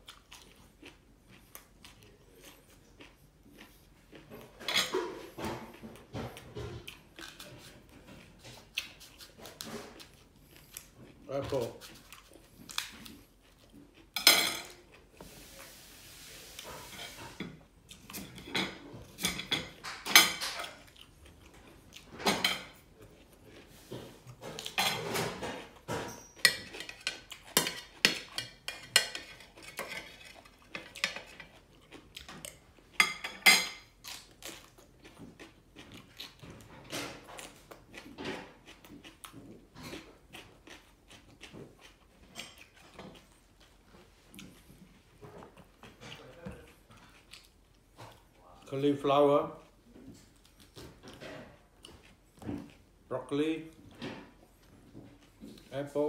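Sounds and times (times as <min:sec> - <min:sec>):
cutlery clinking on plates: 0:14.1 - 0:14.9, 0:16.8 - 0:20.9, 0:24.4 - 0:31.5, 0:32.3 - 0:33.9.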